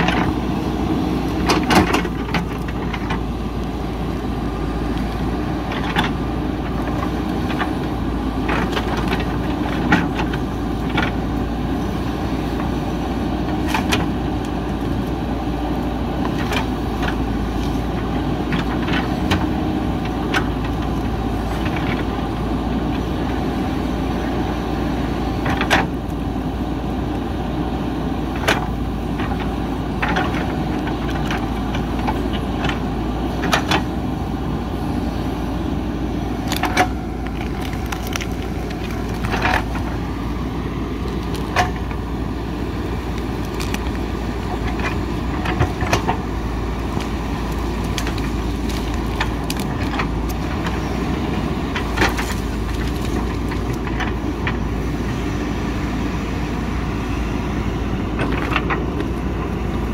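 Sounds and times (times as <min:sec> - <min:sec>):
diesel engine running: 0:00.0 - 0:59.9
sharp cracks and knocks: 0:36.4 - 0:39.9, 0:43.0 - 0:50.8, 0:51.7 - 0:54.6.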